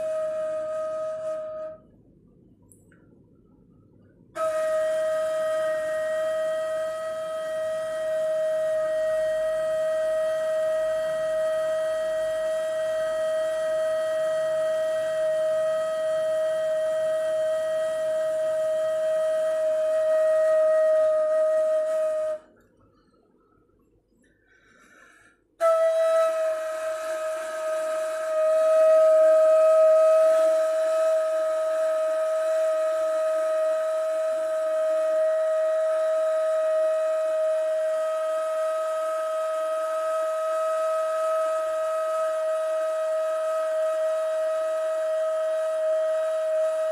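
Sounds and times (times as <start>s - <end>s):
reed flute long breathy note: 0.0s - 2.0s, 3.4s - 46.9s
airy breath sound: 22.8s - 25.6s.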